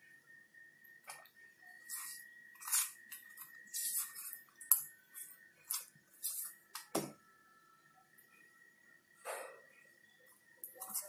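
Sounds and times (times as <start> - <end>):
spoon scraping strokes: 1.1 - 6.6.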